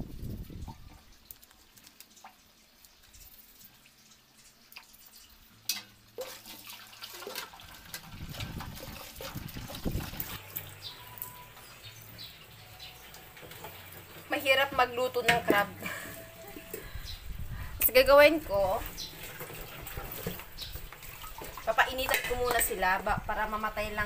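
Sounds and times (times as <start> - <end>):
tap water splashing into steel basin: 4.7 - 10.9, 18.8 - 22.8.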